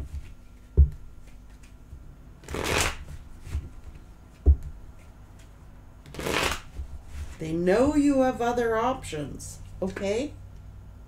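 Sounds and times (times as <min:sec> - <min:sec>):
cards rustling while shuffled: 0:00.0 - 0:07.4
low thump: 0:00.8 - 0:01.0, 0:04.4 - 0:04.8.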